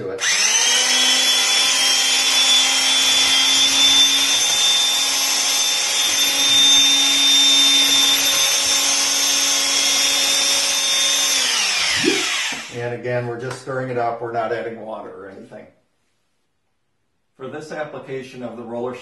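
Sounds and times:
mixer drill running steadily: 0:00.0 - 0:12.8.

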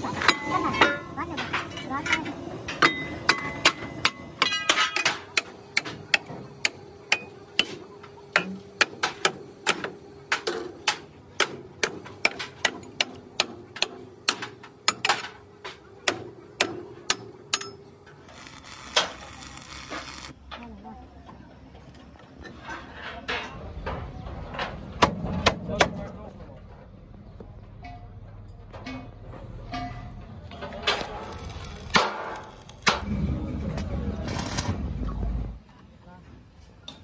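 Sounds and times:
arc welder crackling hiss: 0:18.2 - 0:20.4, 0:31.0 - 0:33.0, 0:34.2 - 0:34.9.

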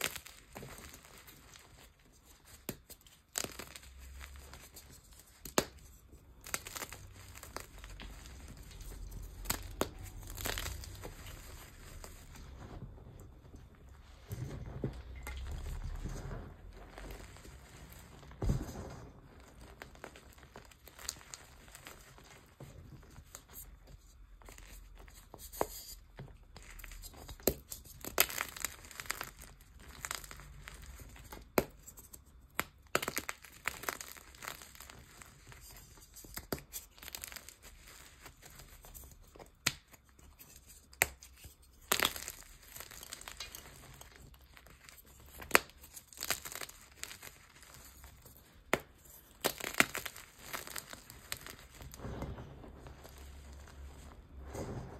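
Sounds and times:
chalk crunching and crumbling: 0:00.0 - 0:54.9
chalk pieces snapping: 0:48.7 - 0:52.0.

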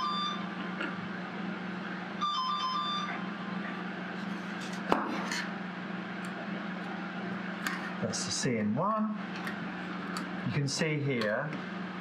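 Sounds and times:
steady low hum: 0:00.0 - 0:12.0
electronic chiming tune: 0:02.2 - 0:03.2.

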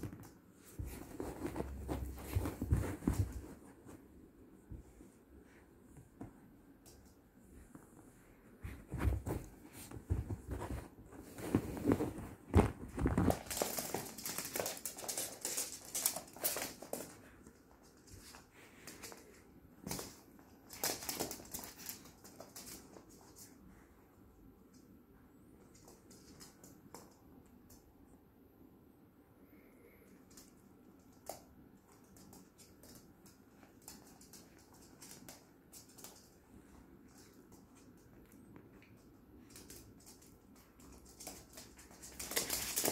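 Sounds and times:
dogs scuffling on hard floor: 0:00.0 - 0:04.1, 0:08.6 - 0:23.6, 0:31.1 - 0:42.9
paws scrabbling: 0:00.0 - 0:04.1, 0:08.6 - 0:23.5, 0:31.3 - 0:42.9.

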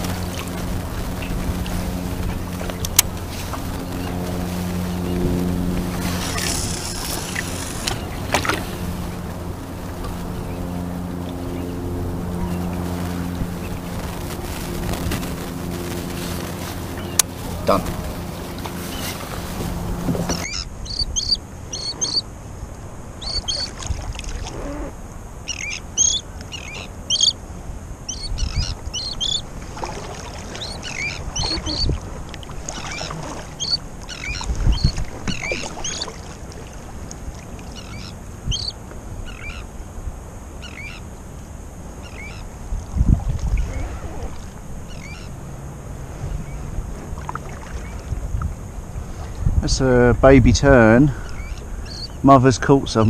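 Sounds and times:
low thumps: 0:00.0 - 0:20.5
water noise: 0:00.0 - 0:53.0
terns calling: 0:02.3 - 0:22.3, 0:23.2 - 0:23.7, 0:24.4 - 0:27.4, 0:28.1 - 0:29.5, 0:30.5 - 0:32.0, 0:32.6 - 0:36.4, 0:37.6 - 0:39.8, 0:40.6 - 0:41.1, 0:42.0 - 0:42.6, 0:44.9 - 0:45.4, 0:50.7 - 0:53.0.

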